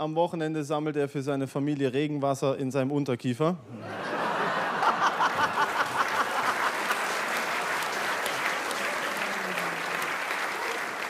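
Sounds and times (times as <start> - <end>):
audience laughing: 3.7 - 11.0
audience applauding: 4.3 - 11.0.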